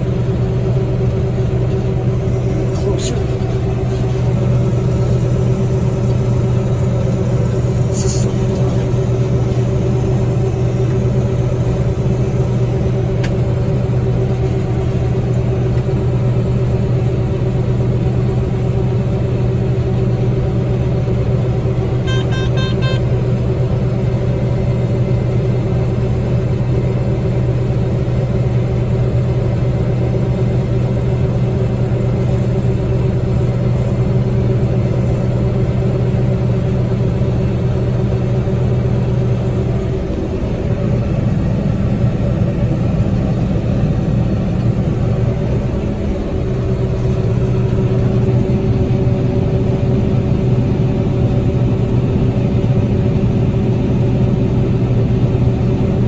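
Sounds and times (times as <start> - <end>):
combine harvester droning: 0.0 - 56.0.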